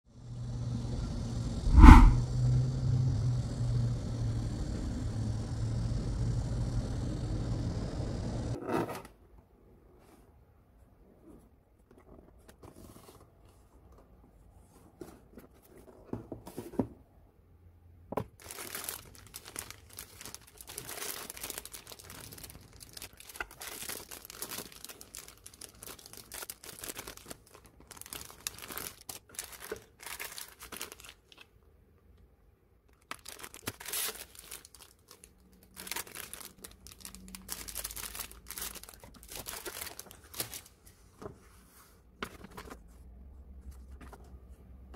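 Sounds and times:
steady low rumble: 0:01.6 - 0:02.3
plastic bags crinkling: 0:18.4 - 0:31.4, 0:33.0 - 0:40.7.

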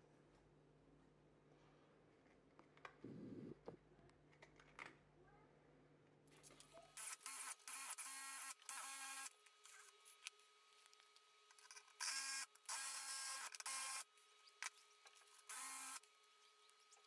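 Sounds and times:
power drill motor whirring: 0:07.0 - 0:09.9, 0:11.9 - 0:14.1, 0:15.3 - 0:16.1.

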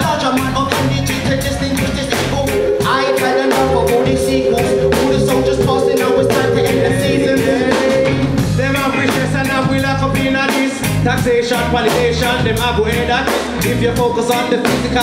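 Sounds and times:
reggae band playing: 0:01.2 - 0:12.0
person singing: 0:02.4 - 0:09.1.

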